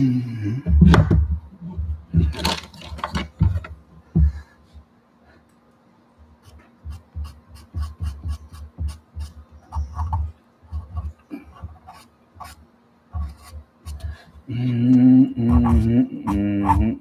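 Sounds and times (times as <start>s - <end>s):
pencil tapping on paper: 6.8s - 12.6s.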